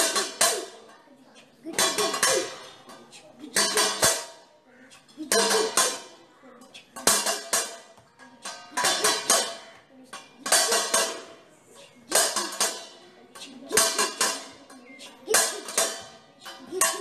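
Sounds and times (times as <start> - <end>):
drumming on steel plate: 0.0 - 0.8, 1.7 - 2.8, 3.5 - 4.4, 5.2 - 6.1, 7.0 - 9.7, 10.4 - 11.4, 12.1 - 13.0, 13.6 - 14.6, 15.3 - 17.0.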